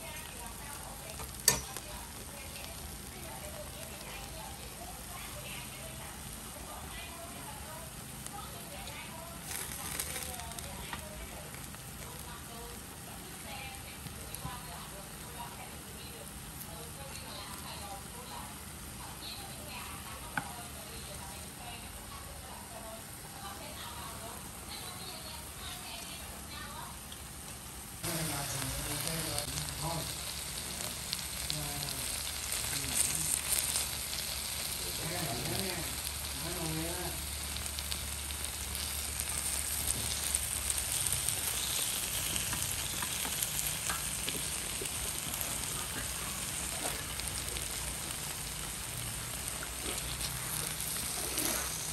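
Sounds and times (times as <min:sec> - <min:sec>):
meat sizzling on a grill plate: 0:00.0 - 0:21.9, 0:22.6 - 0:51.9.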